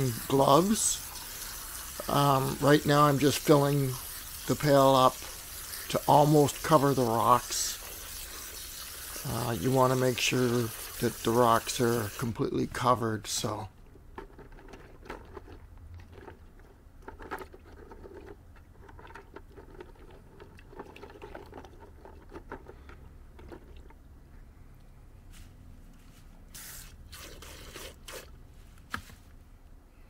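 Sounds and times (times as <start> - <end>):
water splashing in a pail: 0.0 - 13.6, 17.5 - 24.0, 26.5 - 28.4.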